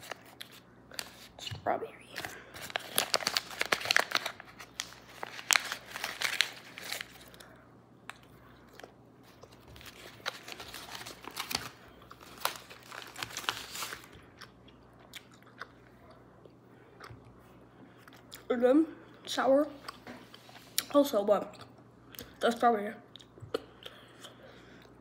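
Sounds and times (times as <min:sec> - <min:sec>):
plastic pouch crinkling: 0:02.2 - 0:07.5, 0:09.4 - 0:14.2.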